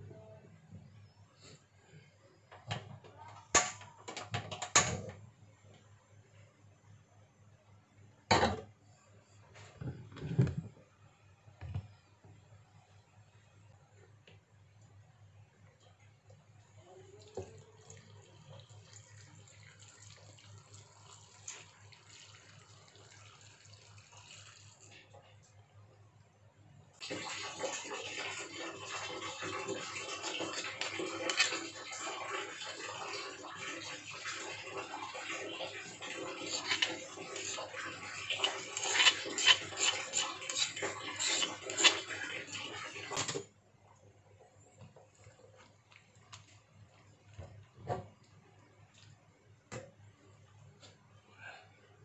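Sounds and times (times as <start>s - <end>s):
water splashing into a pot: 17.3s - 25.1s, 27.0s - 43.5s
paste scraped from stone mortar: 35.8s - 43.1s.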